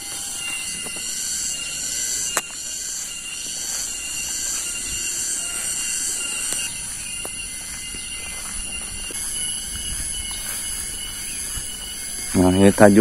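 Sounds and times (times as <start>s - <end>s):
cicadas droning: 0.0s - 13.0s.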